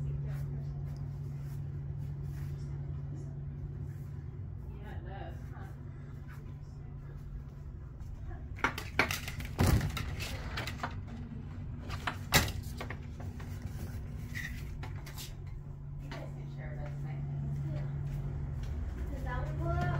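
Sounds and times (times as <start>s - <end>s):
low hum: 0.0s - 19.9s
vertical blinds rattling: 8.4s - 15.5s.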